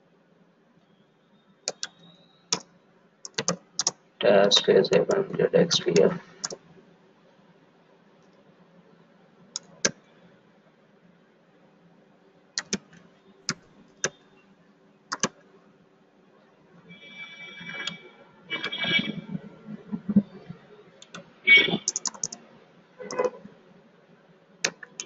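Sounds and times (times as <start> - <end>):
faint steady hum: 0.0 - 25.0
keyboard keystrokes and mouse clicks: 1.6 - 4.0, 5.8 - 6.6, 9.5 - 10.1, 12.6 - 14.2, 15.1 - 15.4, 17.7 - 18.0, 21.0 - 22.4, 23.1 - 23.4, 24.6 - 25.0.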